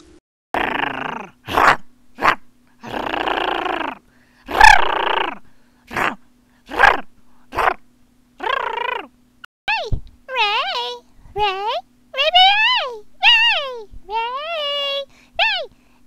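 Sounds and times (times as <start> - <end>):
person imitating growling dog: 0.6 - 7.8, 8.4 - 9.1.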